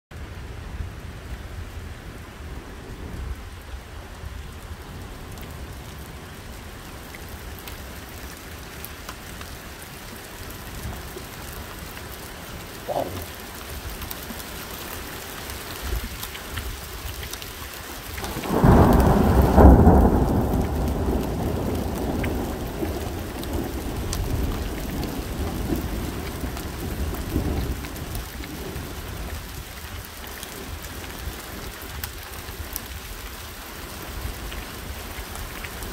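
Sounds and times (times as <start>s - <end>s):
rain falling steadily: 0.1s - 35.9s
thunderclap rumbling: 18.2s - 29.6s.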